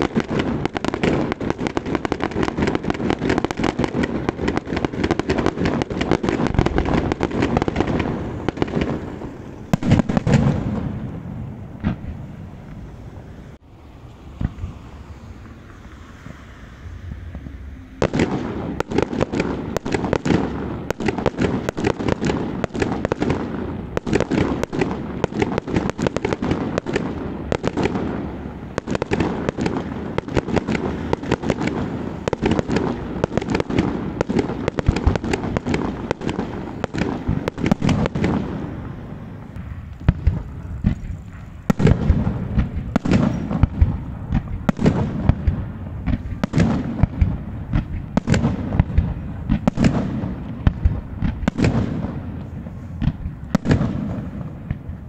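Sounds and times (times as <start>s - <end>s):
fireworks bangs and crackling: 0.0s - 55.0s.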